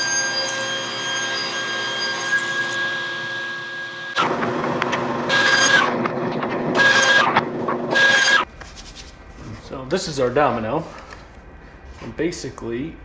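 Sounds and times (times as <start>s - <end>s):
saw blade cutting wood: 0.0s - 3.5s, 5.3s - 6.0s, 6.7s - 8.5s
table saw whining: 0.0s - 6.1s, 6.7s - 8.5s.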